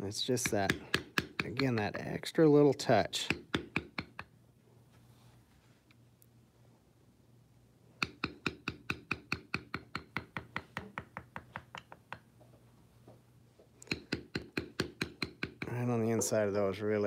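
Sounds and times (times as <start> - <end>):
mallet tapping stamping tool: 0.4 - 2.0, 3.2 - 4.3, 8.0 - 12.3, 13.8 - 15.8.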